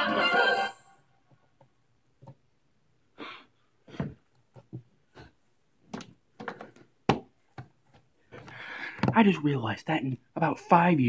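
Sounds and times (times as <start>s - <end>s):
person breathing: 3.1s - 4.2s, 8.3s - 9.1s.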